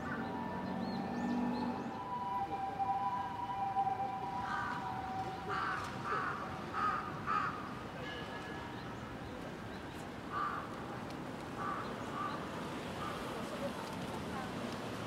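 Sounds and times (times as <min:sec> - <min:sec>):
steady background noise: 0:00.0 - 0:15.0
crow cawing: 0:05.5 - 0:07.6, 0:10.3 - 0:10.7, 0:11.6 - 0:12.4.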